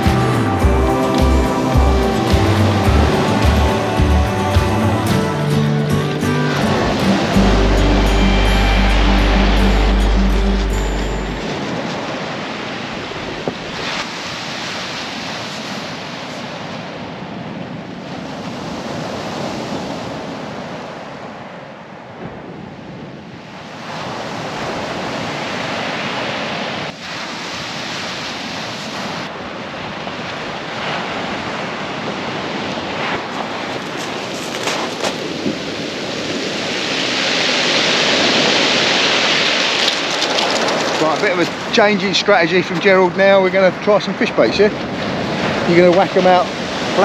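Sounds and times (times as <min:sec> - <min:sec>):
surf breaking on shingle: 0:33.1 - 0:42.1.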